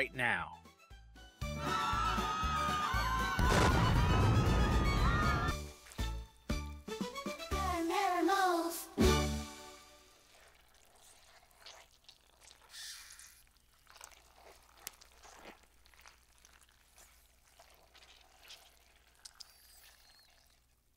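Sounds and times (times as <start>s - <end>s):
faint wet drips and clicks: 10.4s - 20.8s.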